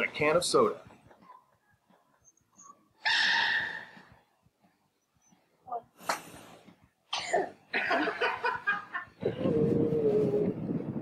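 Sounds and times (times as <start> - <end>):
drawn-out cry: 3.0 - 4.2
people laughing: 7.7 - 9.3.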